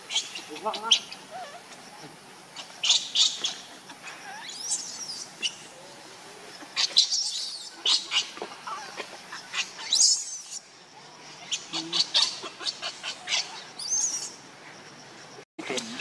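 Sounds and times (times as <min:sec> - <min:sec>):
baby monkey shrieking: 0:06.8 - 0:10.6, 0:11.5 - 0:14.4.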